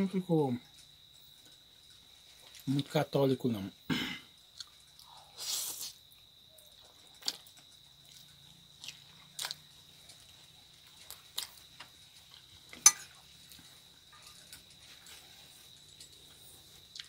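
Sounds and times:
chewing clicks: 6.6s - 12.5s.

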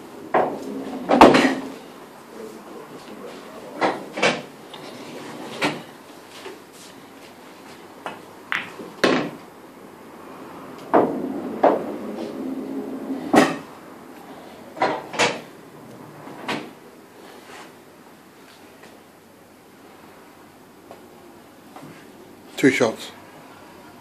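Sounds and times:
pool ball rolling rumble: 0.0s - 6.0s, 8.0s - 17.6s
pool balls clicking and knocking: 0.0s - 9.6s, 10.7s - 13.8s, 14.7s - 16.8s.

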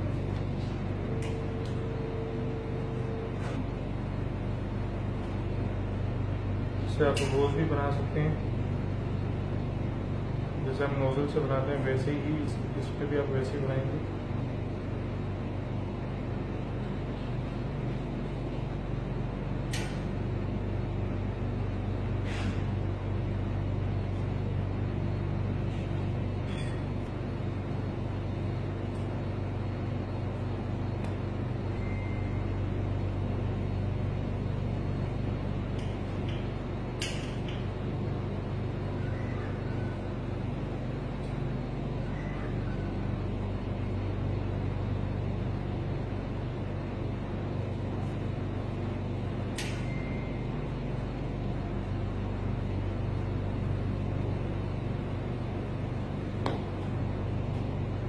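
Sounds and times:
low machine hum: 0.0s - 58.0s
sharp click: 49.6s - 50.0s.

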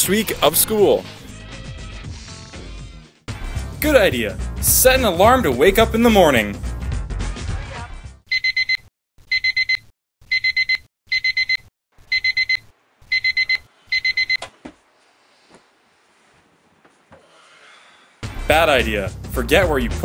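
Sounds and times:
alarm clock beeping: 8.3s - 14.4s
faint soft rustles: 14.7s - 17.6s.

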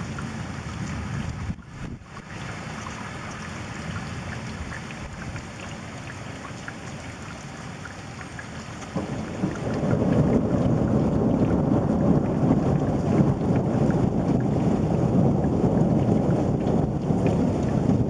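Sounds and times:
rain falling: 0.0s - 18.0s
low rumble of thunder: 8.8s - 18.0s.

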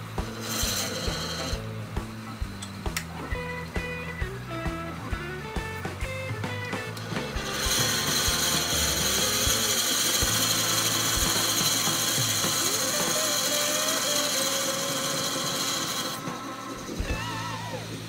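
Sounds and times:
drill boring into spinning wood: 0.2s - 1.7s, 7.0s - 18.0s.

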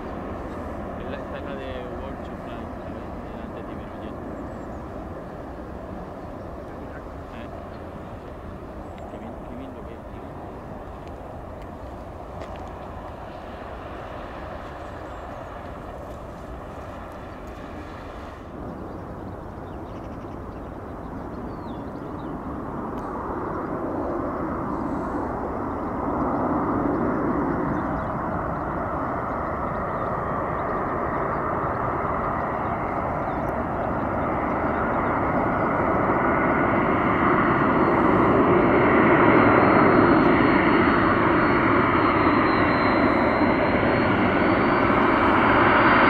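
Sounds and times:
jet airliner rolling out: 0.0s - 46.0s
jet airliner rumble on approach: 0.0s - 46.0s.

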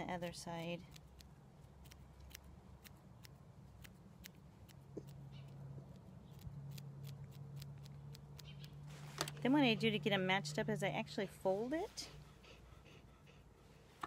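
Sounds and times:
scissors snipping hair: 0.0s - 9.8s.

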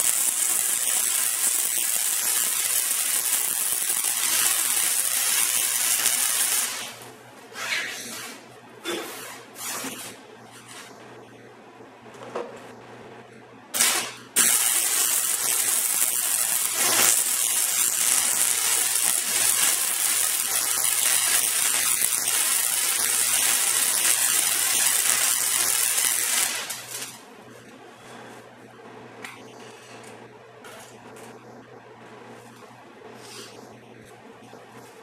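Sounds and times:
welder arc crackling: 0.0s - 7.2s, 13.8s - 27.3s.

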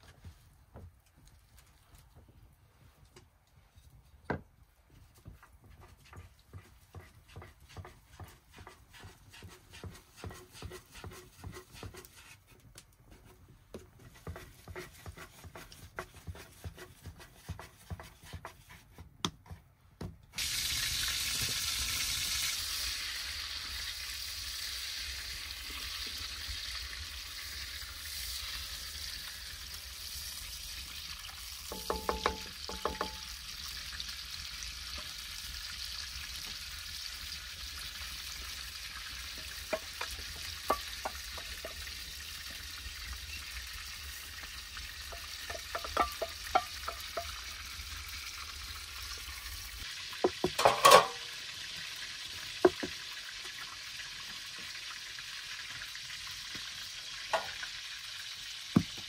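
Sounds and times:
food frying in a pan: 5.2s - 12.4s, 20.4s - 59.0s.

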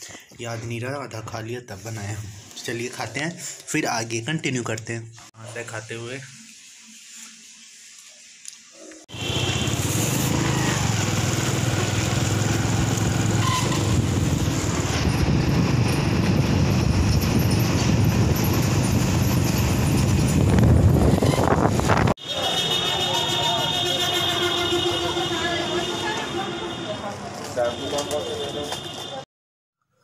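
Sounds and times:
vehicle and road noise: 9.1s - 29.2s.

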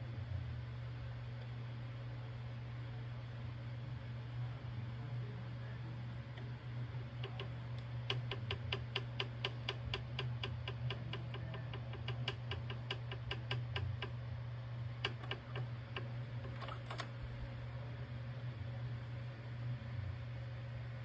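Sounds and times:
rapid mechanical ticking: 7.2s - 14.2s, 15.0s - 17.0s.

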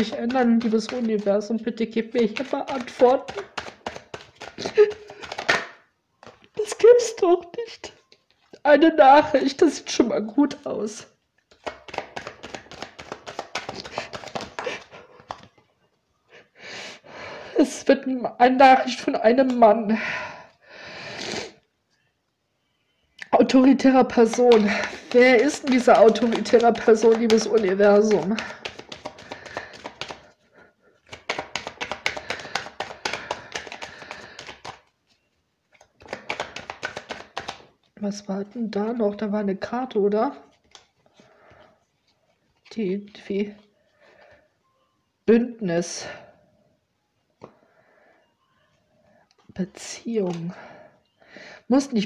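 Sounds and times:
cards being shuffled: 0.0s - 6.8s, 11.4s - 15.7s, 24.1s - 30.4s, 31.0s - 37.9s, 40.5s - 43.2s.

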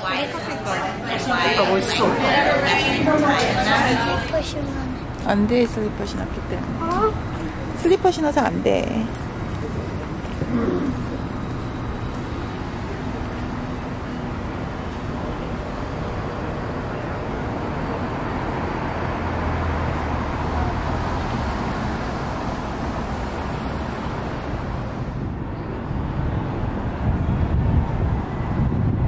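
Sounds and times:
passing cars: 0.0s - 29.0s
vehicle going by: 17.3s - 26.1s.

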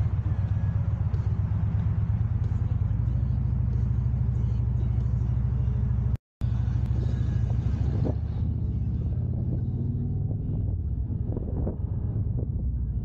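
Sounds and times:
motorcycle engine running: 0.0s - 13.0s
wind noise on microphone: 6.9s - 13.0s.

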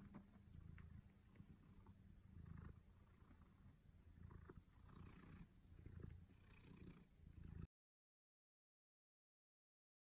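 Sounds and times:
cat purring: 0.0s - 7.7s.

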